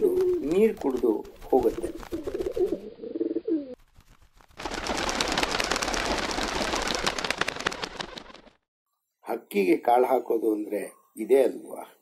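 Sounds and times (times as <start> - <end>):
pigeon wingbeats clattering: 0.0 - 2.9, 3.8 - 8.6
pigeon cooing: 2.0 - 3.8.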